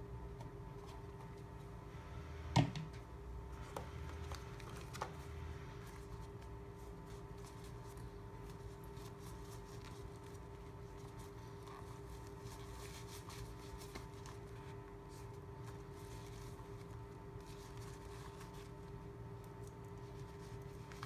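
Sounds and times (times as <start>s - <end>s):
low electrical hum: 0.0s - 21.0s
plastic object knocked on wooden desk: 2.6s - 3.0s
fabric pouch rustling: 5.8s - 21.0s.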